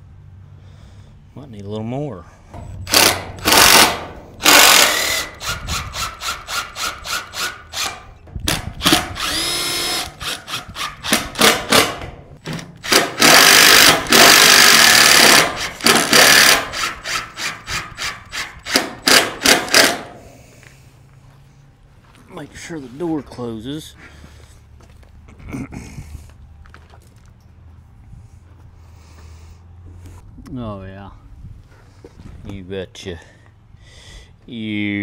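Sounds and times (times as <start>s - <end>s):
cordless drill whining: 2.9s - 11.8s, 12.8s - 19.9s.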